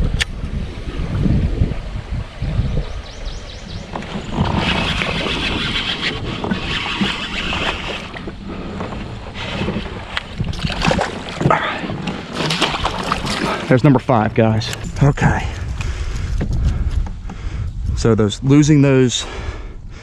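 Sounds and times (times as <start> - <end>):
wind buffeting microphone: 0.0 - 20.0
water sloshing around kayak: 0.4 - 15.0
short splashes or knocks: 9.6 - 13.7.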